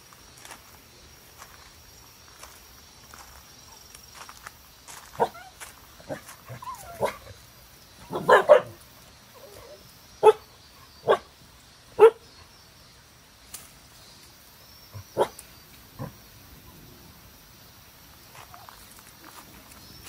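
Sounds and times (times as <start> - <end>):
dog barking: 6.8 - 7.4, 8.1 - 8.8, 10.2 - 10.4, 11.0 - 11.3, 12.0 - 12.2, 15.2 - 15.4.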